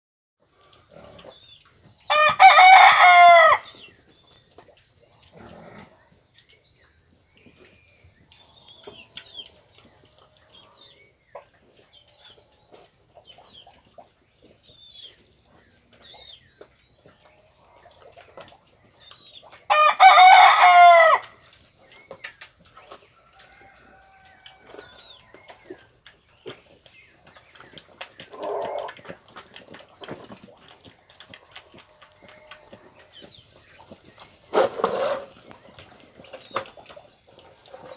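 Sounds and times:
piglets rooting on concrete: 0.4s - 37.9s
rooster crowing: 2.1s - 3.7s, 19.7s - 21.3s
low pig grunt: 5.3s - 6.1s.

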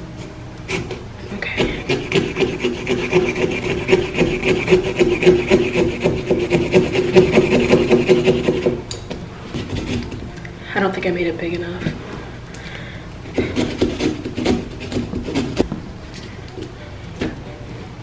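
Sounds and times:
saw rasping through pumpkin rind: 0.7s - 8.8s, 9.5s - 10.1s, 13.3s - 15.6s.

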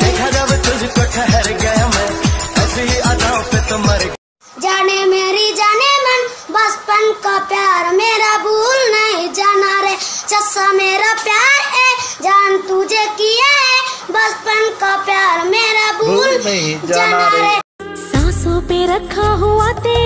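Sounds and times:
song with high singing voice: 0.0s - 4.2s, 16.0s - 20.0s.

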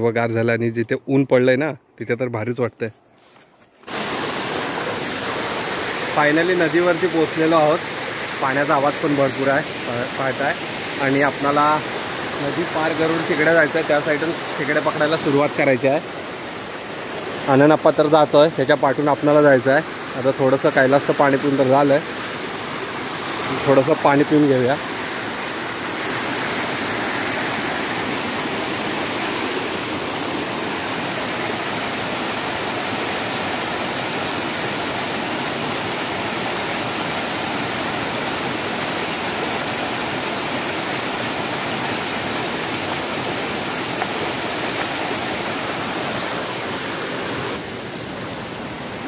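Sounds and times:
waterfall splashing over rocks: 3.8s - 49.0s.

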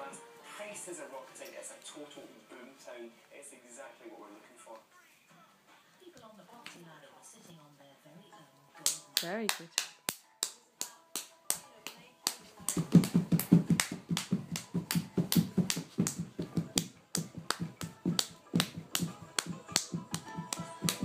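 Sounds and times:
hand clapping: 8.8s - 21.0s
balalaika music from small speaker: 13.2s - 21.0s.

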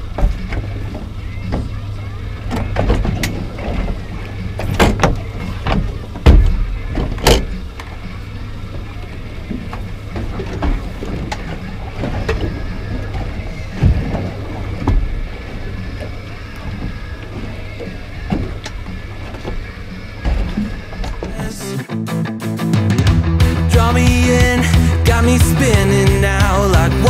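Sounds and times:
knocks and thumps on boat deck: 0.0s - 21.6s.

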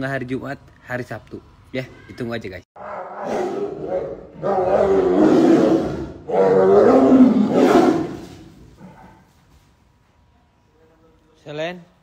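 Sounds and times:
tigers roaring: 2.8s - 9.2s.

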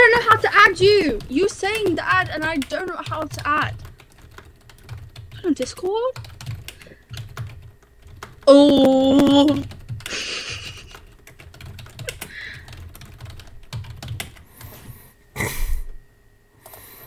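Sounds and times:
woman's voice: 0.0s - 3.8s, 5.4s - 6.2s, 8.5s - 9.7s
typing on computer keyboard: 0.1s - 14.7s.

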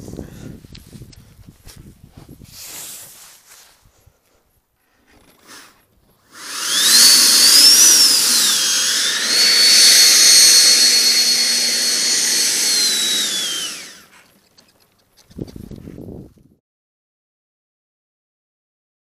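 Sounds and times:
model jet engine whining: 6.3s - 14.1s.

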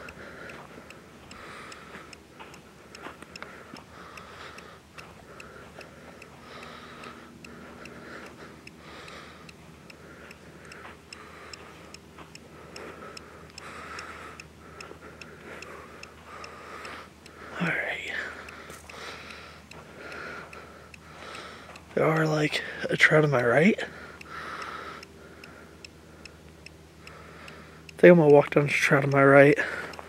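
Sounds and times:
faint even ticking: 0.0s - 30.0s.

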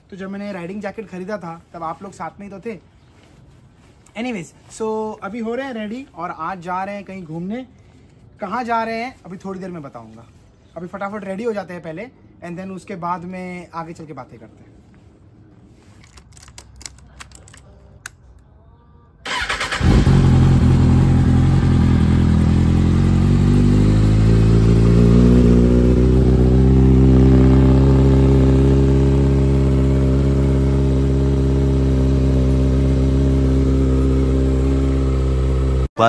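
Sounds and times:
motorcycle engine starting and idling: 19.2s - 35.9s.

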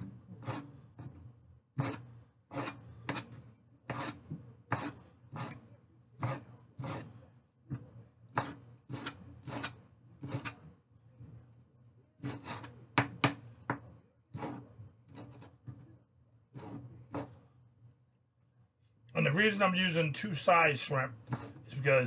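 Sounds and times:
knife scraping board: 0.4s - 1.2s, 1.8s - 7.2s, 8.3s - 10.7s, 12.2s - 13.4s, 14.3s - 15.8s, 16.6s - 17.4s, 21.2s - 21.9s
knife chopping on cutting board: 8.3s - 10.6s.

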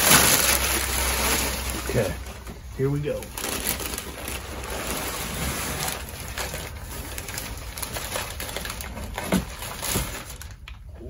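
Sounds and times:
packing paper rustling and crinkling: 0.0s - 11.0s.

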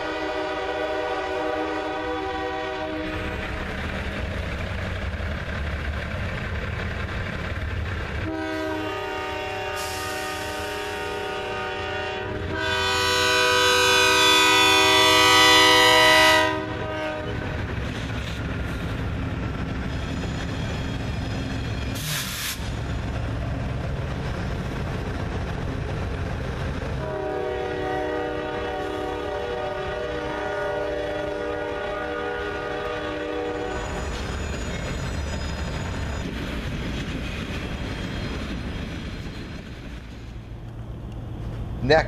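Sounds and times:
locomotive horn: 0.0s - 3.3s, 8.2s - 17.6s, 27.0s - 34.0s
freight train rumble and wheel clatter: 0.0s - 42.0s.

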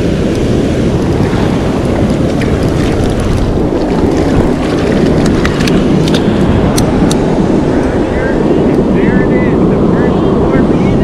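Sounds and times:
surf washing on sand: 0.0s - 11.0s
wind buffeting microphone: 0.0s - 11.0s.

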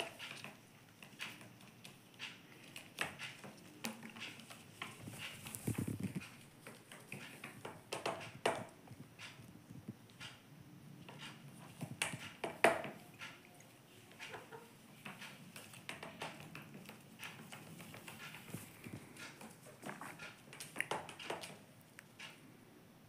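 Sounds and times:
parrot claws tapping on wood: 6.6s - 9.4s, 11.1s - 13.4s, 14.1s - 22.4s.

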